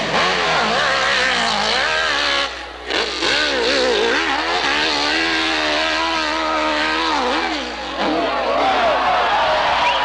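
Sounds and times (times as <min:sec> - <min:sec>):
motorcycle engine revving hard: 0:00.0 - 0:08.9.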